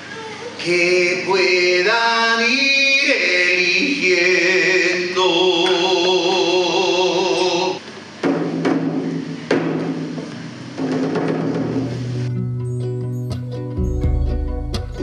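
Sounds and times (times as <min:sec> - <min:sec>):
person singing folk song: 0:00.2 - 0:07.8
drum strikes: 0:08.2 - 0:12.3.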